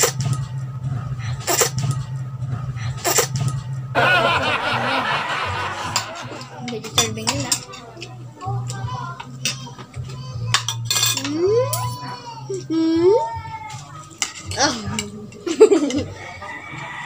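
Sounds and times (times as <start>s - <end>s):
murmured voices: 4.0s - 9.2s
cutlery clinking on plates: 6.8s - 8.2s, 10.5s - 12.0s.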